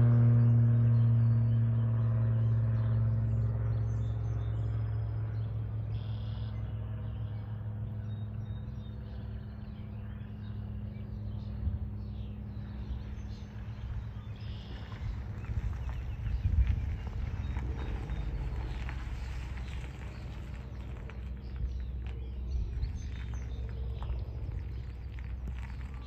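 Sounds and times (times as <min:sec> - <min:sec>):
low motor hum: 0:00.0 - 0:26.0
faint bird chirps: 0:05.9 - 0:07.4, 0:12.1 - 0:19.0.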